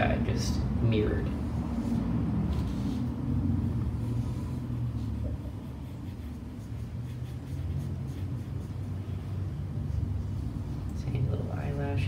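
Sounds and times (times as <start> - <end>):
steady low rumble: 0.0 - 12.0
pencil strokes on paper: 1.8 - 10.8.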